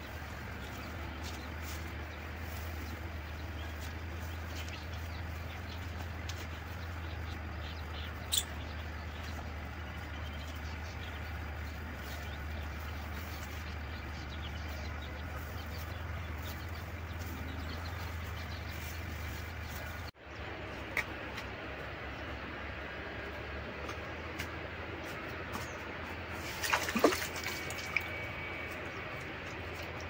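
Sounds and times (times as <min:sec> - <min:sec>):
bird chirps: 0:02.5 - 0:20.1.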